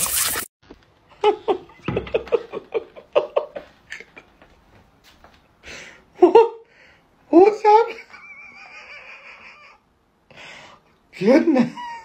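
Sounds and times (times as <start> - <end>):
garden hose spray hissing: 0.0 - 0.5.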